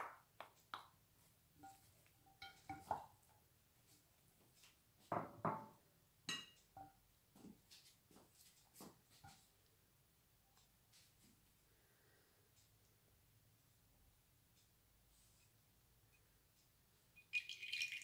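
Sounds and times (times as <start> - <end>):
wooden spoon knocking on glass bowls: 1.6 - 3.2.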